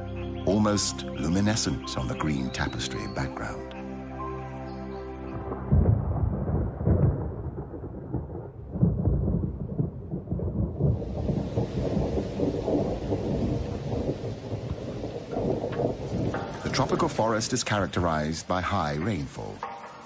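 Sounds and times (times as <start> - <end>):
thunder rumbling: 5.3 - 18.4
rain hissing: 10.4 - 20.0.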